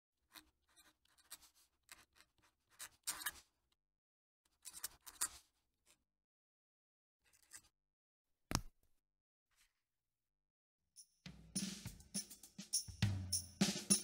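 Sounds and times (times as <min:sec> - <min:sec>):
pen nib scratching paper: 0:00.3 - 0:03.5, 0:04.6 - 0:05.5.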